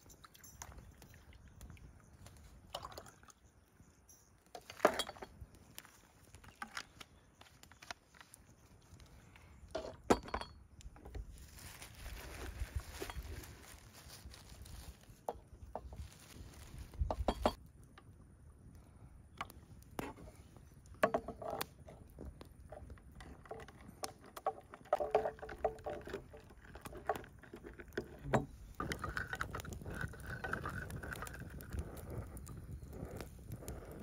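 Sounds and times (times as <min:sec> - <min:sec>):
campfire crackling and hissing: 0:00.0 - 0:10.0, 0:10.7 - 0:34.0
plastic rustling: 0:11.2 - 0:17.5
wooden stick stirring in metal pot: 0:22.7 - 0:31.8.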